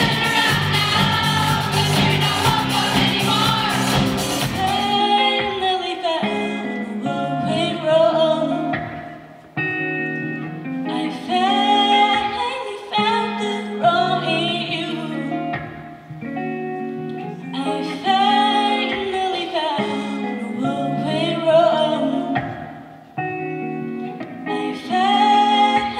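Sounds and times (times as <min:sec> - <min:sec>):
band with cymbals: 0:00.0 - 0:05.3
group of young singers: 0:00.0 - 0:09.1, 0:10.9 - 0:15.4, 0:17.5 - 0:22.9, 0:24.2 - 0:25.9
woman singing: 0:00.0 - 0:09.2, 0:10.8 - 0:15.8, 0:17.3 - 0:23.0, 0:24.2 - 0:25.9
guitar: 0:00.0 - 0:25.9.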